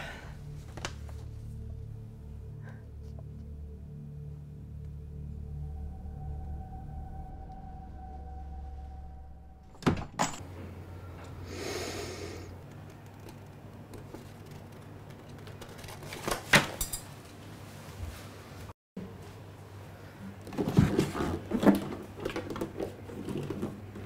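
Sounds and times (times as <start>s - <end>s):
low music drone: 0.0s - 12.7s
door clicks: 9.7s - 10.4s.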